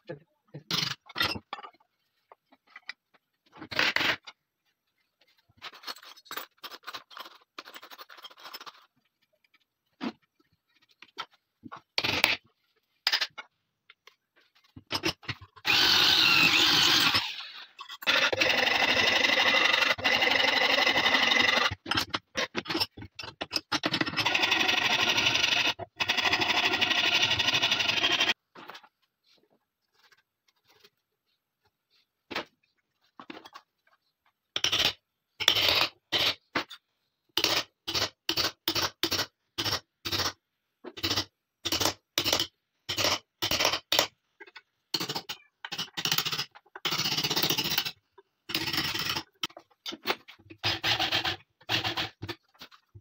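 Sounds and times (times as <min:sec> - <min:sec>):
metal parts clicking and scraping: 0:05.6 - 0:09.6
electric drill boring into wood: 0:15.6 - 0:21.8.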